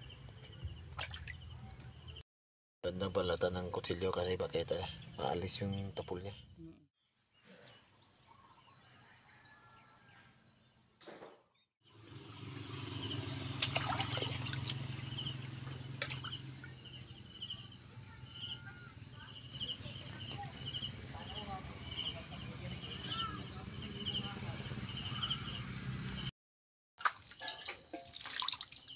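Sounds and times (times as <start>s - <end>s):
insects chirping: 0.0s - 2.2s, 2.9s - 6.8s, 11.9s - 26.3s, 27.0s - 28.9s.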